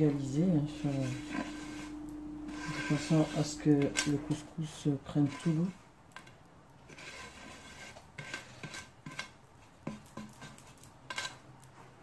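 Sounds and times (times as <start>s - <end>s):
hand sweeping couscous grains: 0.2s - 4.5s.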